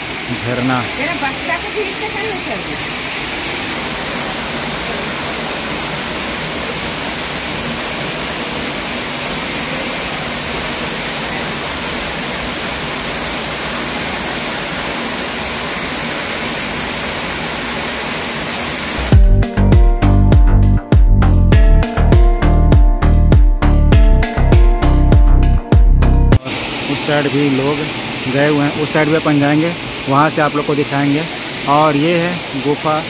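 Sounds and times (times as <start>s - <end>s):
waterfall rushing: 0.0s - 19.2s, 26.4s - 33.0s.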